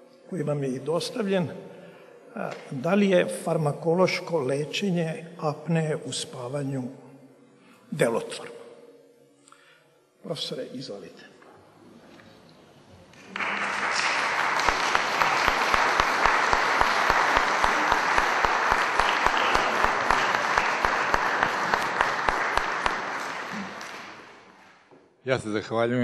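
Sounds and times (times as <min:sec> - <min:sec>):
audience applauding: 0:13.1 - 0:24.8.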